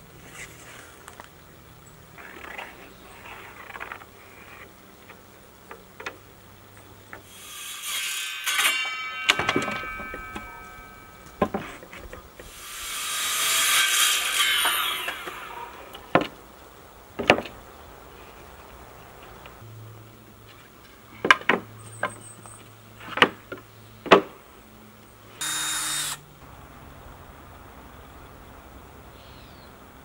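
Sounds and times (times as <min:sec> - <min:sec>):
sharp wooden knocks: 0:09.3 - 0:12.5, 0:17.2 - 0:17.6
saw cutting plywood: 0:11.4 - 0:15.9, 0:25.4 - 0:26.2.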